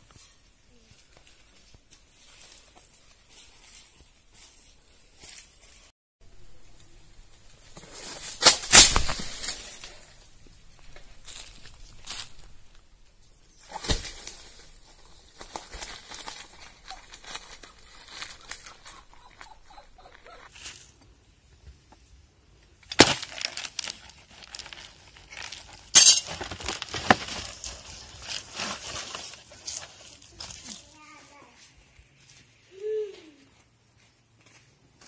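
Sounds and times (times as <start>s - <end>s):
dry leaves crackling and rustling: 0.2s - 5.9s, 7.5s - 12.8s, 13.6s - 19.6s, 20.5s - 21.0s, 22.9s - 32.9s.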